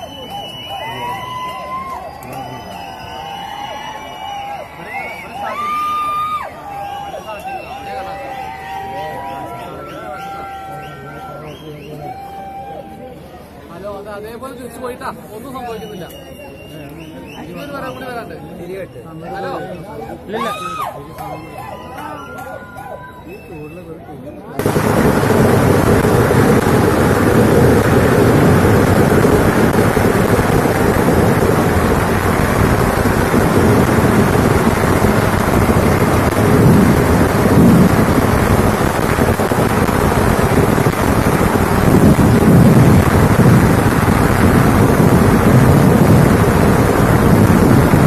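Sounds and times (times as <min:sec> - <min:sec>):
firecrackers going off rapidly: 0:00.0 - 0:10.6, 0:24.6 - 0:48.0.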